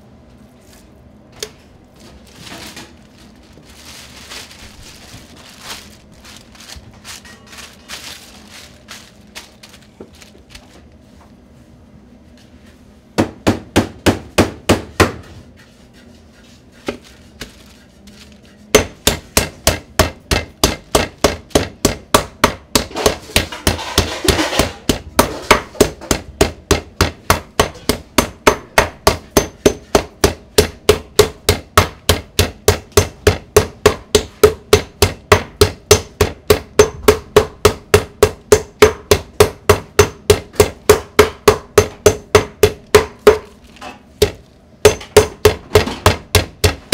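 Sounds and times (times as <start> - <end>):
meat mallet pounding on board: 13.2 - 15.3, 18.7 - 46.9.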